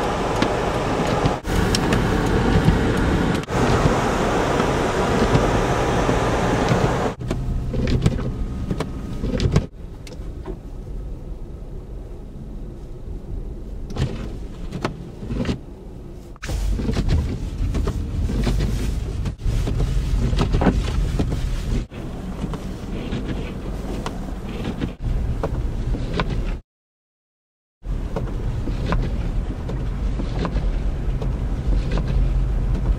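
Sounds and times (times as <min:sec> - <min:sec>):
road hiss: 0:00.0 - 0:07.2
car engine and tyre rumble: 0:00.0 - 0:26.6, 0:27.8 - 0:32.9.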